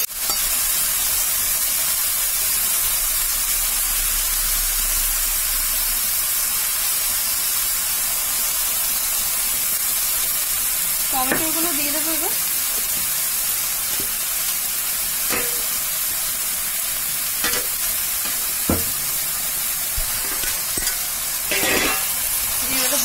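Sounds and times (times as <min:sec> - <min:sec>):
vegetables sizzling in oil: 0:00.0 - 0:23.0.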